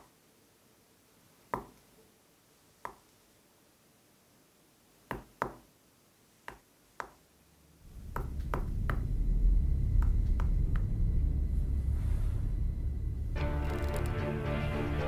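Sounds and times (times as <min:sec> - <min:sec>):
low rumbling drone: 0:07.8 - 0:15.0
knuckles knocking on a wall: 0:08.1 - 0:09.1.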